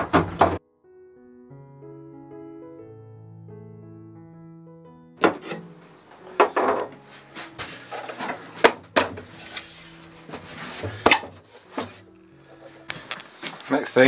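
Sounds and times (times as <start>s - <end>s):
wooden knocks and clacks: 0.0s - 0.6s, 6.4s - 7.0s
wood scraping against wood: 5.2s - 14.0s.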